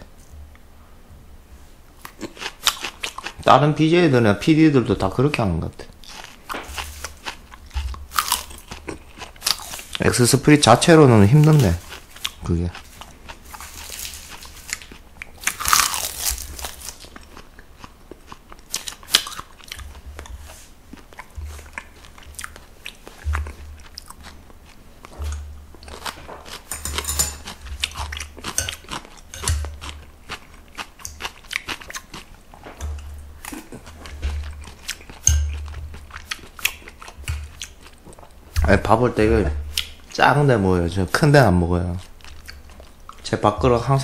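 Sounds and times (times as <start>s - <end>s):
person chewing and crunching food: 2.0s - 3.6s, 5.8s - 43.4s
chopsticks and spoon clicking bowls: 26.6s - 30.0s, 34.2s - 35.8s.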